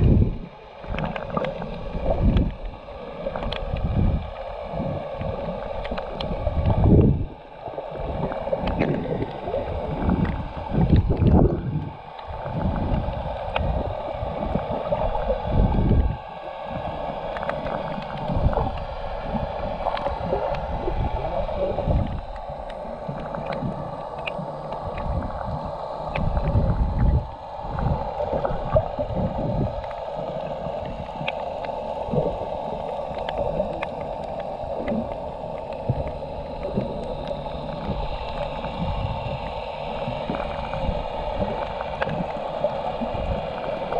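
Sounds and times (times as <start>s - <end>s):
underwater watery hiss: 0.0s - 43.9s
faint clicks: 0.8s - 2.7s, 3.3s - 4.5s, 5.1s - 7.2s, 8.2s - 13.7s, 17.1s - 19.0s, 19.6s - 20.6s, 21.9s - 28.8s, 29.6s - 39.4s, 40.0s - 43.9s.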